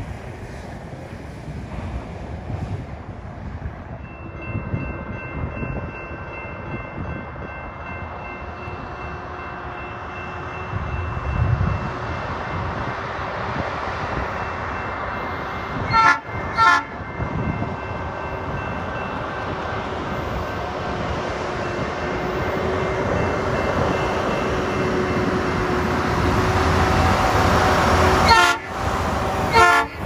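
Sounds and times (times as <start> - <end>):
truck horn blasts: 15.9 - 17.0, 28.2 - 28.7, 29.5 - 30.0.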